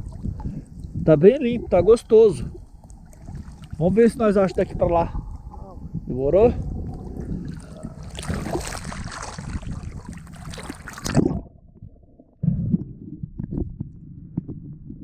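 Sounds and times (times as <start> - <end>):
water splashing and sloshing: 0.0 - 1.0, 1.9 - 14.6
muffled underwater sound: 3.7 - 15.0
low underwater knocks: 6.6 - 15.0.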